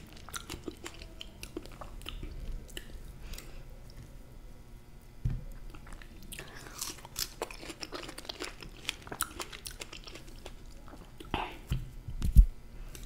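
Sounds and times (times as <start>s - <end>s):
chewing with wet clicks: 0.0s - 4.0s, 5.5s - 11.4s.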